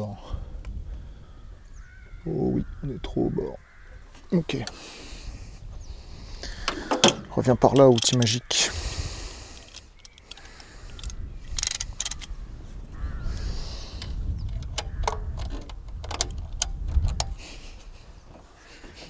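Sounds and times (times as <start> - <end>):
metal tool clicks and knocks: 6.7 - 8.4, 9.6 - 12.3, 14.0 - 17.4.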